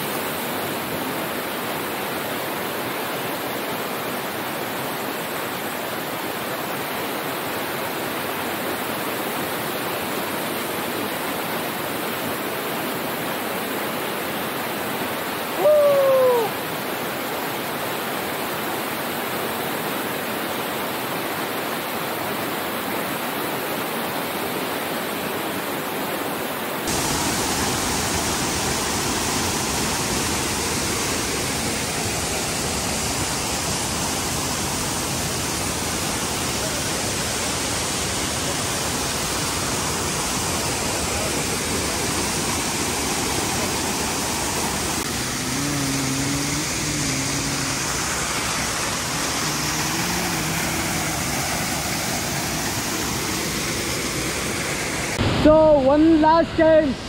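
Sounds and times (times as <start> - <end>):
waterfall and stream rushing: 0.0 - 57.0
short falling hoot: 15.6 - 16.6.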